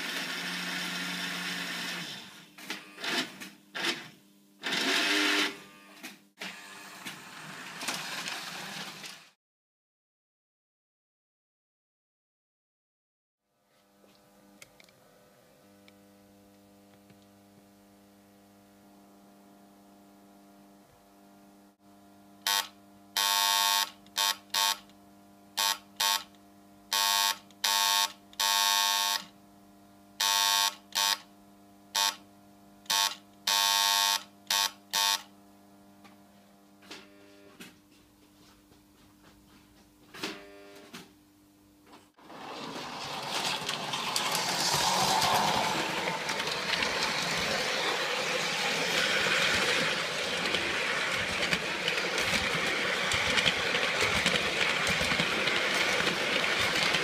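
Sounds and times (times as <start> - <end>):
toy train running on track: 6.8 - 9.3, 42.2 - 57.0
electric buzzer morse pulses: 22.4 - 24.9, 25.6 - 29.3, 30.2 - 31.3, 31.9 - 32.2, 32.8 - 35.3.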